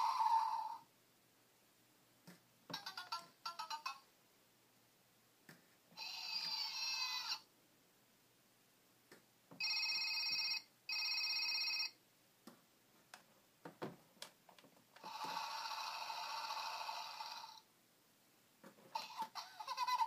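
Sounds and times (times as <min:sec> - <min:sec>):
electronic telephone ring: 0:09.6 - 0:12.0.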